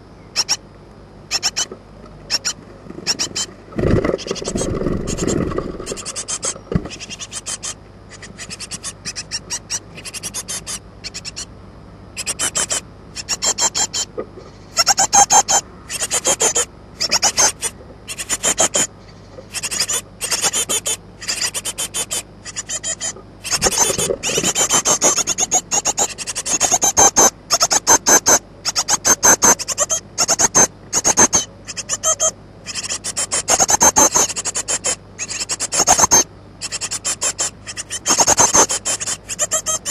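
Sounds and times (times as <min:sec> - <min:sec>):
nestlings rasping: 0:12.2 - 0:27.9.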